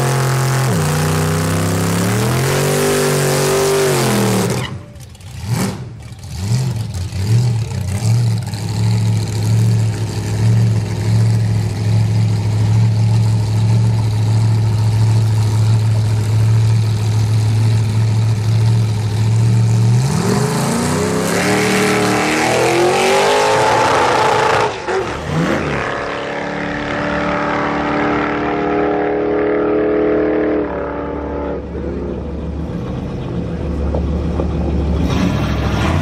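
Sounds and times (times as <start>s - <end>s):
engine revving: 0.0s - 11.4s, 19.6s - 32.8s
drag car engine launching: 34.9s - 36.0s.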